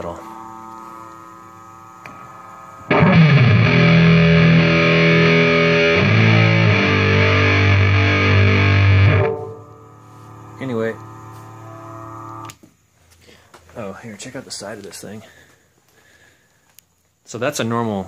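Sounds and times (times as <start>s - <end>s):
distorted electric guitar chords: 0.0s - 12.6s.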